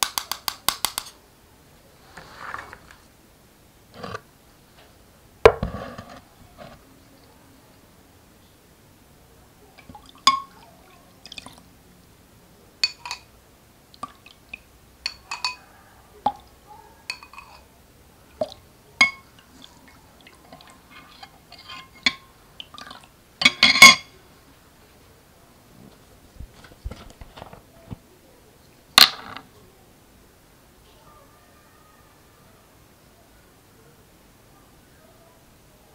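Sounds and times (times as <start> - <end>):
faint liquid sounds: 5.7 - 28.8
spoon clattering: 9.8 - 10.5, 12.8 - 13.3, 15.0 - 15.6, 17.1 - 17.7, 19.0 - 19.3, 20.6 - 24.1
spoon clinking against bowl: 10.2 - 10.5, 12.8 - 13.3, 15.0 - 15.6, 17.1 - 17.7, 19.0 - 19.3, 21.0 - 22.3, 23.4 - 24.1.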